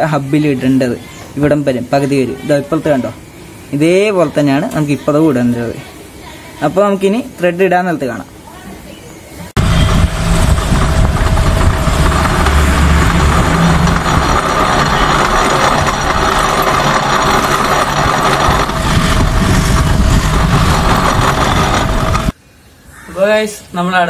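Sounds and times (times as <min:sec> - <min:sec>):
metal lathe humming and whining: 0:09.6 - 0:22.4.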